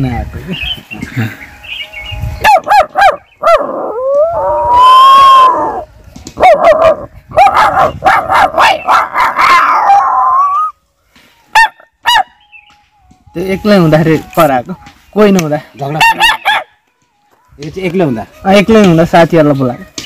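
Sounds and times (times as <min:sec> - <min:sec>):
man imitating dog yelps and howl: 0:02.4 - 0:10.8, 0:11.5 - 0:12.3, 0:15.9 - 0:16.7.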